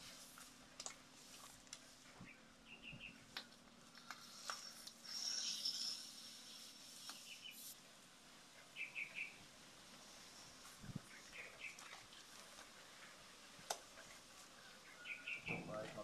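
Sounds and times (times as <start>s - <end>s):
small bird chirping: 2.2s - 3.3s, 4.2s - 7.8s, 8.7s - 9.4s, 14.6s - 15.6s
high bird trill: 5.1s - 6.6s.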